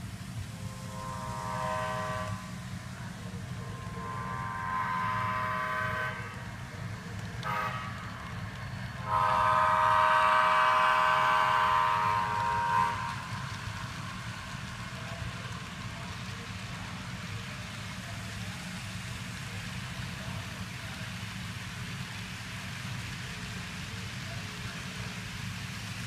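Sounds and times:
low diesel engine rumble: 0.0 - 26.0
multi-chime air horn blasts: 0.6 - 13.8.

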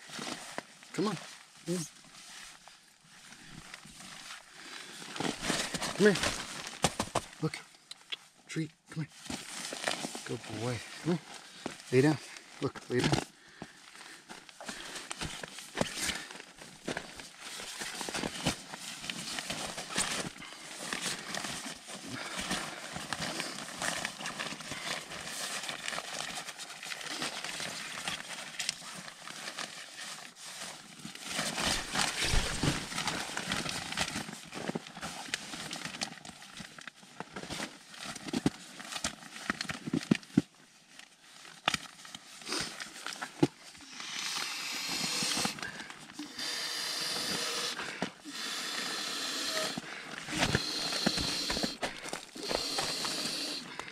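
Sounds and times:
tent fabric rustling and crinkling: 0.0 - 8.4, 9.0 - 53.9
breathy hiss of blowing into valve: 43.9 - 53.8.

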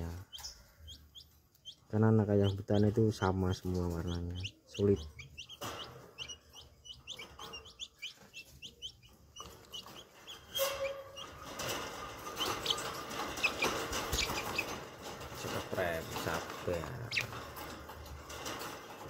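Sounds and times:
chicks peeping: 0.0 - 19.0
chicks scuffling in wire cage: 0.0 - 19.0.

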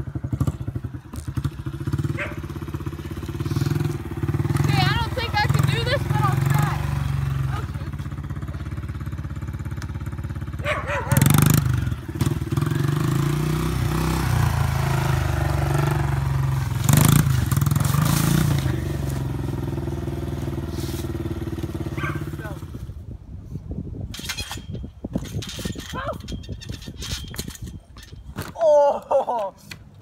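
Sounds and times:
small motorbike engine revving: 0.1 - 23.0.

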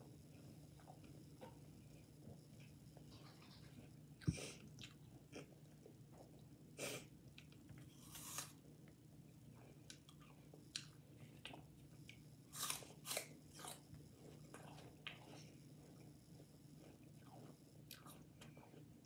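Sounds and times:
person crunching apple slices: 8.0 - 8.6, 12.5 - 15.4.

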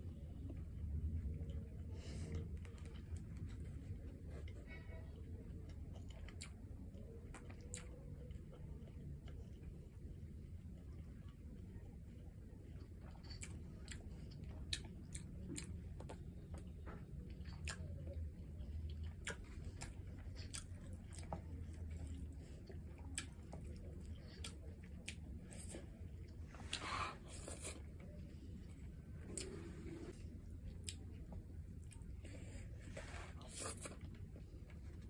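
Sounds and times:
steady low hum: 0.0 - 35.0
wet chewing and mouth clicks: 5.3 - 9.8, 12.6 - 29.7, 30.4 - 32.2.

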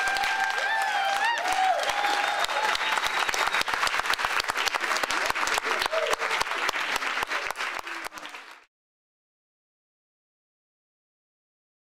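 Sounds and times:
audience applauding: 0.0 - 8.7
loud close hand clapping: 0.0 - 8.7.

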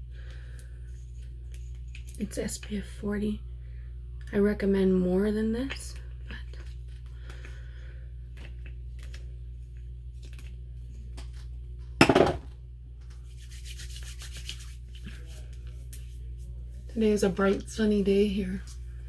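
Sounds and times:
low hum: 0.0 - 19.0
hands rubbing skin: 13.1 - 16.6.

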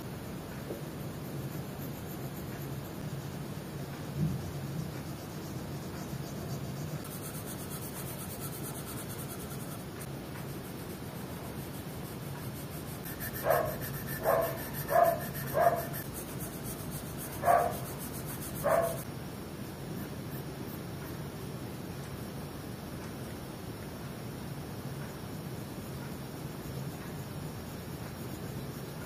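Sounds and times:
faint steady hiss: 0.0 - 29.0
pencil shading on paper: 7.0 - 19.1
dog barking: 13.4 - 16.0, 17.4 - 17.9, 18.6 - 19.0.

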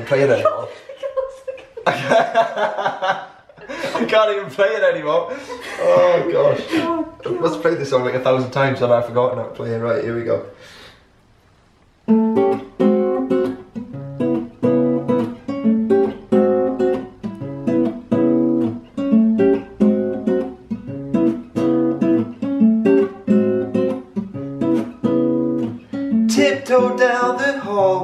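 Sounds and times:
acoustic guitar plucked chords: 12.0 - 28.0.

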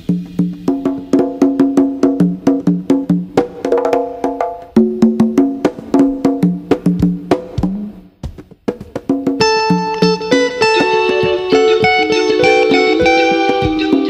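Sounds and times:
repeating pitched percussive music: 0.0 - 14.0.

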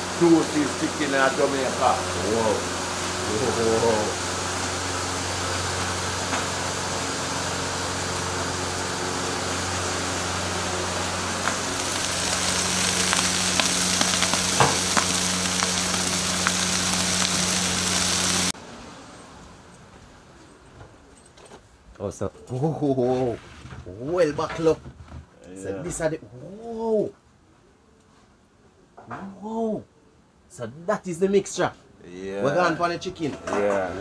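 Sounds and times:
chicken sizzling on a grill: 0.0 - 18.5
low hum: 1.8 - 18.5.

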